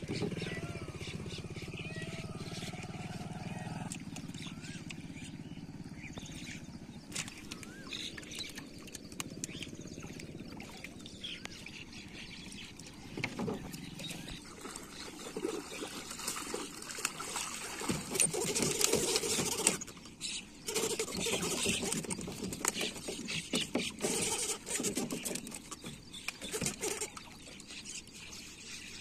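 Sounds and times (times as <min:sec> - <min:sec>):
low steady hum: 0:00.0 - 0:17.9
water splashing and dripping: 0:12.7 - 0:19.9.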